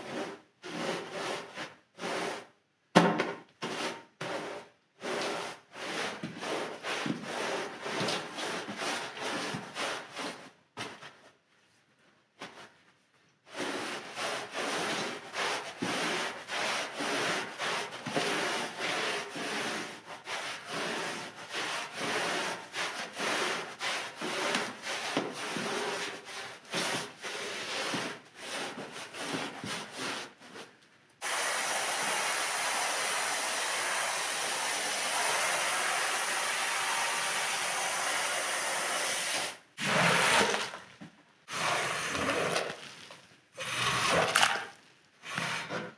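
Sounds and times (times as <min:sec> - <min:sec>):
brush scrubbing wet rug: 0:04.3 - 0:10.4, 0:13.5 - 0:30.4.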